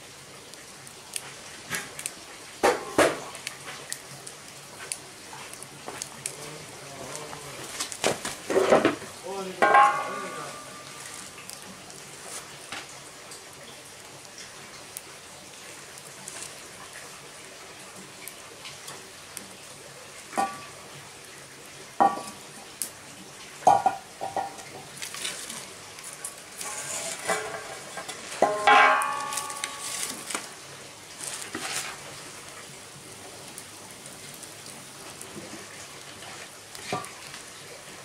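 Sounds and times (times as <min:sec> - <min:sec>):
faint steady sizzle: 0:00.0 - 0:38.0
metal cookware clanking: 0:09.6 - 0:11.2, 0:26.6 - 0:30.4.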